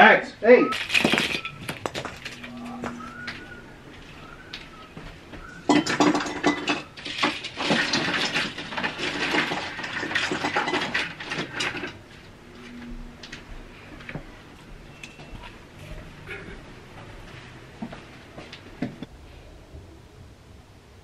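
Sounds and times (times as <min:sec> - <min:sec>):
plastic decorations rattling: 0:00.7 - 0:03.4, 0:05.7 - 0:12.1.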